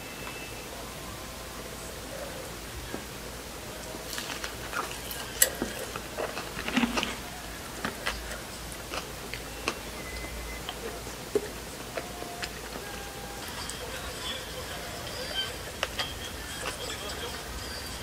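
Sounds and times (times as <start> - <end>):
crunchy chewing: 3.7 - 18.0.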